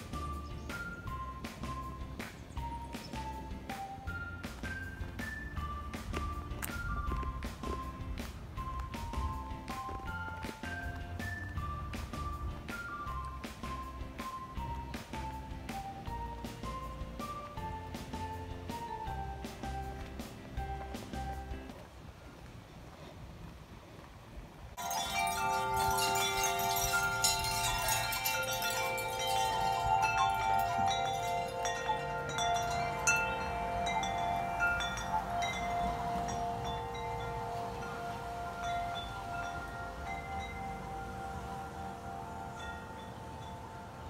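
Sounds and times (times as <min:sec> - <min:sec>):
metal wind chimes ringing: 0:24.8 - 0:44.0.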